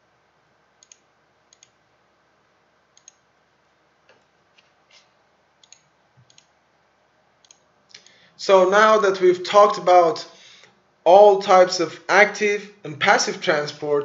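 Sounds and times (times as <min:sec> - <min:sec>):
computer mouse clicks: 0:00.8 - 0:01.8, 0:03.0 - 0:03.2, 0:04.1 - 0:06.6.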